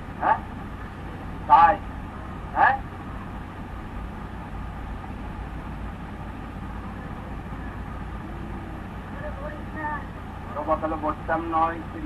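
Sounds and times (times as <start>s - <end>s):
low hum: 0.0s - 12.0s
faint voice murmuring: 6.8s - 10.2s.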